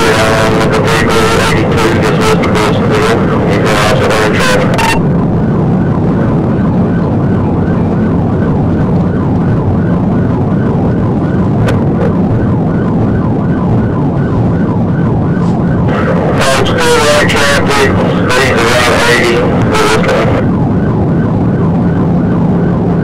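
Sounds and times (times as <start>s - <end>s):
police siren yelping: 0.0s - 23.0s
road and engine rumble: 0.0s - 23.0s.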